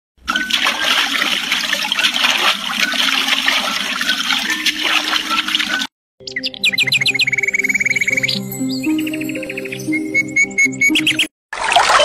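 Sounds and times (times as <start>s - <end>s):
water rushing and splashing: 0.2s - 5.9s, 11.5s - 12.0s.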